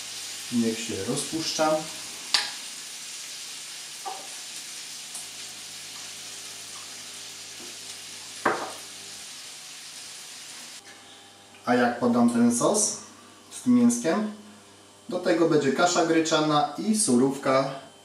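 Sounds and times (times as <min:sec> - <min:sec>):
fat sizzling in a pan: 0:00.0 - 0:10.8.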